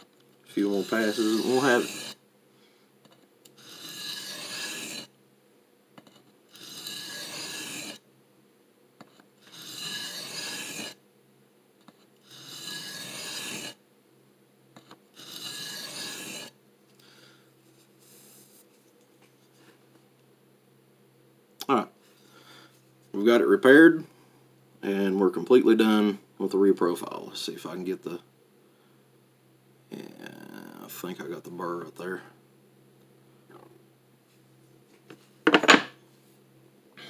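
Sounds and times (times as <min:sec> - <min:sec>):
knife scraping on sharpening plate: 0:03.6 - 0:05.1, 0:06.6 - 0:08.0, 0:09.4 - 0:11.0, 0:12.3 - 0:13.7, 0:15.2 - 0:16.5.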